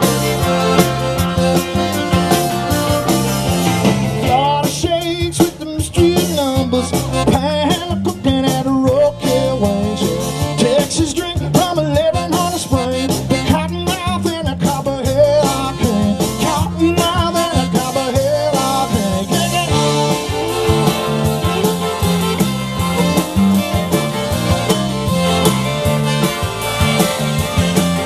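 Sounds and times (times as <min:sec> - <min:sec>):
live band playing: 0:00.0 - 0:28.0
man singing: 0:04.2 - 0:21.5.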